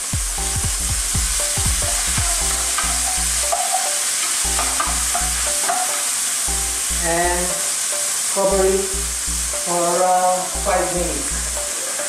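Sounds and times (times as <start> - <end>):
meat sizzling in hot oil: 0.0 - 12.0
spoon knocking against pan: 1.6 - 6.2
spoon scraping a pan: 1.9 - 6.4.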